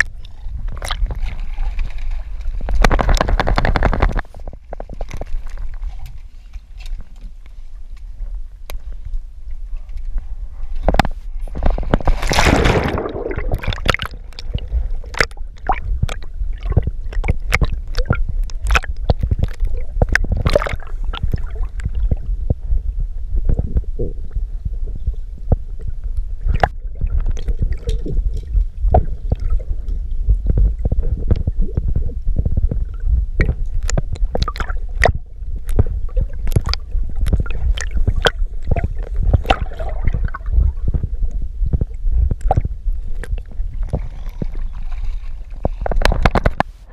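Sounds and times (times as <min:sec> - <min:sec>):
sharp underwater clicks: 0:00.0 - 0:06.2, 0:10.8 - 0:22.3, 0:25.4 - 0:46.8
underwater rumbling and gurgling: 0:00.0 - 0:46.9.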